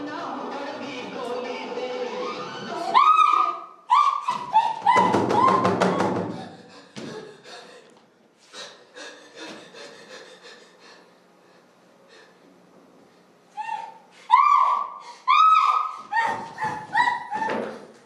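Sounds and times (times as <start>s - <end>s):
high wailing voice: 2.1s - 5.7s, 13.6s - 17.6s
breaths: 6.3s - 12.5s.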